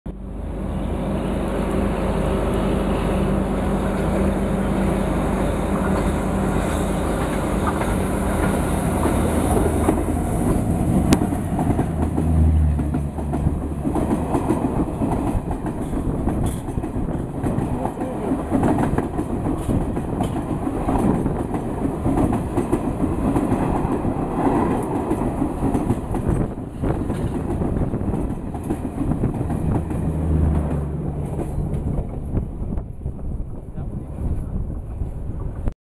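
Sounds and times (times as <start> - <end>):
moving train low hum: 0.1 - 35.7
passing train wheel clatter: 2.5 - 33.8.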